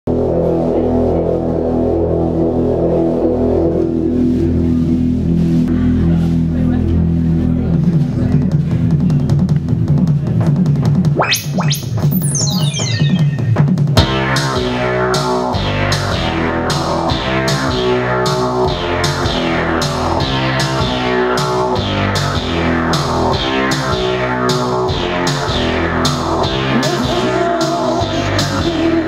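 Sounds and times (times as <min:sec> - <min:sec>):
synthesizer: 0:00.1 - 0:29.0
steady beat: 0:07.9 - 0:29.0
electric guitar chords: 0:12.8 - 0:29.0.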